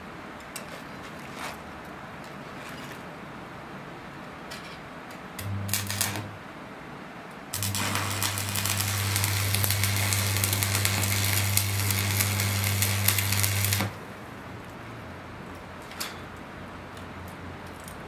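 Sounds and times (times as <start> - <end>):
welding arc crackling: 5.4 - 6.4, 7.5 - 14.1
low hum: 7.6 - 13.9.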